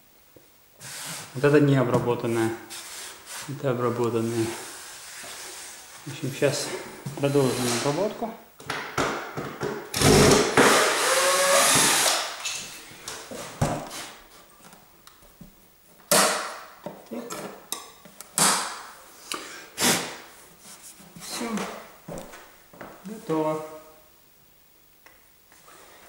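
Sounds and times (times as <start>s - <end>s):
cordless drill running: 10.0s - 12.3s.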